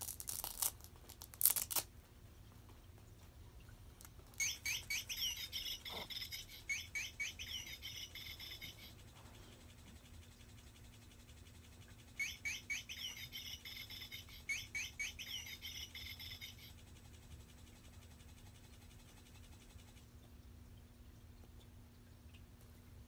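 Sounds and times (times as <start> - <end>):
toy bird chirping: 4.3 - 9.1, 9.8 - 16.9.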